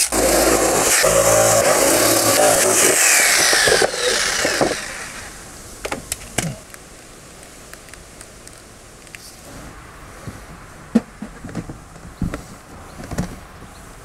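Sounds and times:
electric jigsaw cutting plastic: 0.0 - 5.3.

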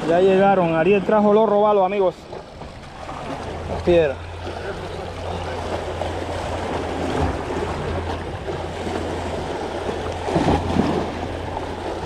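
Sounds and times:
sea water washing against rocks: 2.0 - 12.0.

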